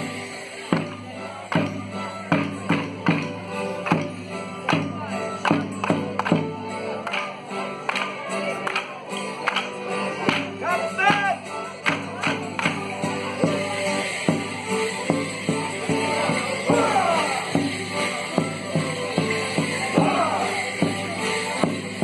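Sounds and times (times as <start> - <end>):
folk band music: 0.0 - 22.0.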